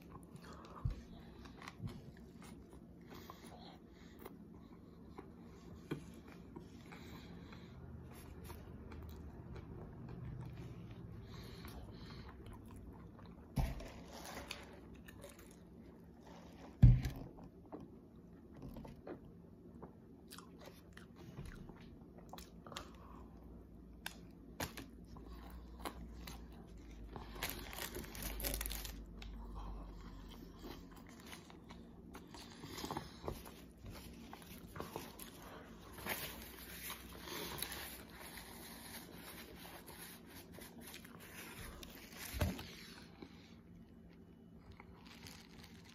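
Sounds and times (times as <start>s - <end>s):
man chewing: 19.8s - 23.3s.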